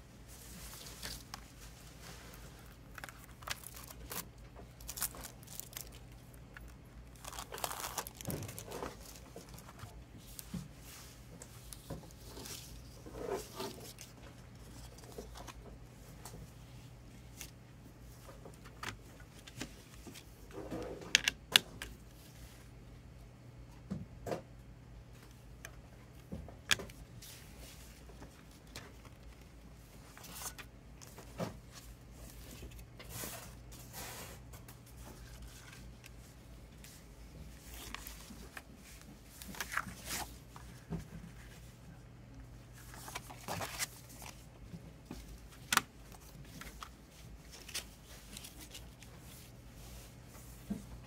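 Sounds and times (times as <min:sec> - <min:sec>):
paper rustling: 0:00.4 - 0:15.6, 0:34.9 - 0:41.6, 0:42.8 - 0:44.4, 0:45.1 - 0:50.8.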